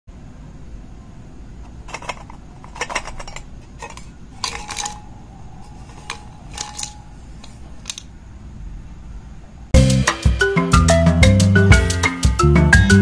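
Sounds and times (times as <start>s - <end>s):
puzzle pieces rattling in metal mug: 1.8s - 8.0s.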